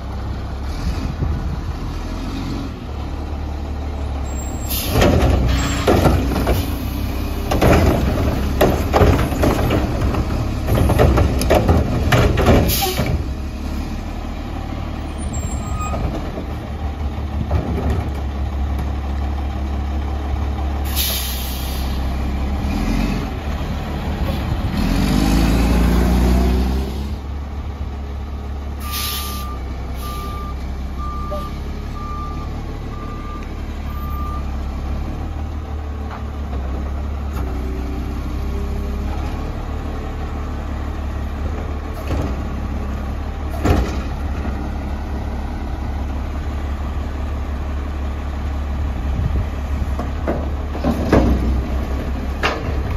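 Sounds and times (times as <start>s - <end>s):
diesel engine running: 0.0s - 52.9s
heavy clattering and banging: 7.5s - 13.4s, 15.6s - 18.9s, 49.8s - 52.9s
air brake hisses: 20.9s - 22.0s, 28.8s - 30.3s.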